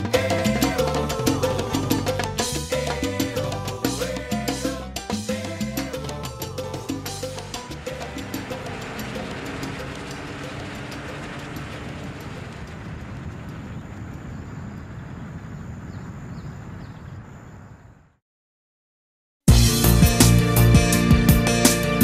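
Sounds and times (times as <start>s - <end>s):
salsa song: 0.0s - 11.7s.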